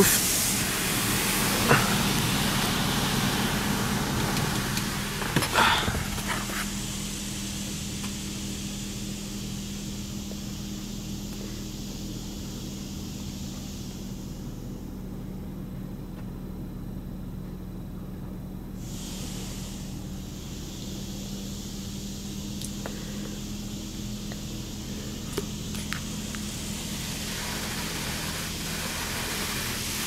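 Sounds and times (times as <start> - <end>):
car wash water jets hissing: 0.0 - 15.2, 18.8 - 30.0
low hum: 0.0 - 18.8, 19.4 - 30.0.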